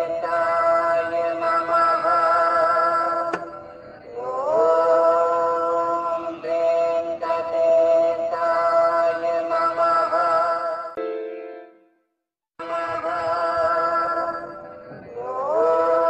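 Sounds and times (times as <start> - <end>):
devotional singing: 0.0 - 11.0, 12.6 - 16.0.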